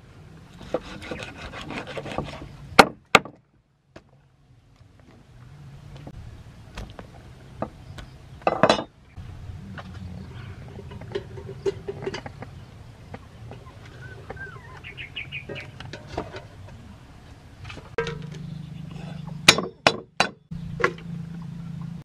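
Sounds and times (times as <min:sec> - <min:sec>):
chirps: 0:11.5 - 0:15.8.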